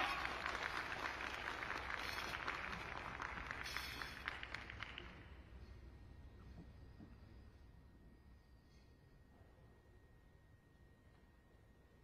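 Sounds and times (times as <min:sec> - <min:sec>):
audience clapping: 0:00.0 - 0:05.5.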